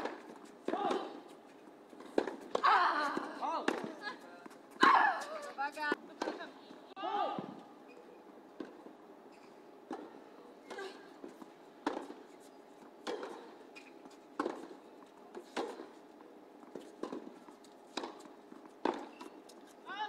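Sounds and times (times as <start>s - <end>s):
tennis ball hit by rackets: 0.0s - 1.3s, 2.0s - 4.0s, 6.2s - 6.5s, 11.8s - 12.2s, 13.0s - 16.0s, 16.8s - 19.4s
tennis ball bouncing on court: 2.0s - 6.7s, 9.9s - 12.2s, 13.0s - 16.0s, 16.6s - 19.6s.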